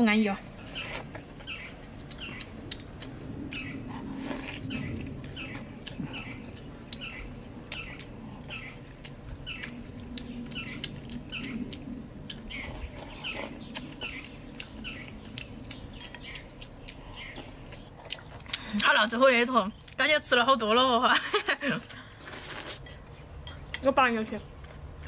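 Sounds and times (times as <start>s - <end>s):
small bird chirping: 0.6s - 3.9s, 4.5s - 18.2s, 23.1s - 24.5s
person chewing and lip-smacking: 0.6s - 19.0s.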